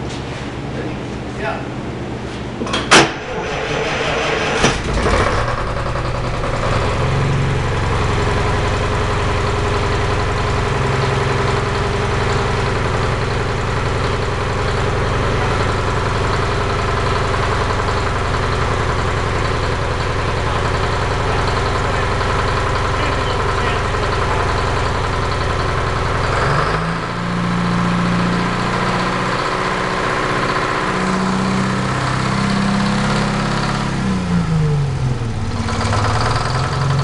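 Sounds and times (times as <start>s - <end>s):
diesel engine starting and idling: 1.8s - 37.0s
sharp loud bang: 2.9s - 3.5s.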